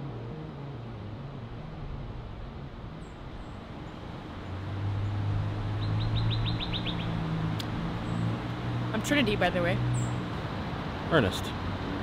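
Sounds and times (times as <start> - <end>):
low engine hum: 0.0 - 12.0
bird trill: 5.8 - 7.2
faint bird chirps: 5.8 - 7.2.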